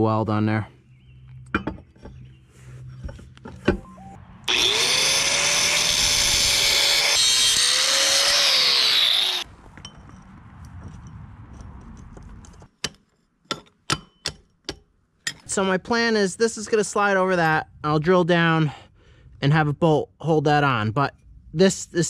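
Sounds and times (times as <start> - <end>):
angle grinder cutting steel pipe: 4.5 - 9.5.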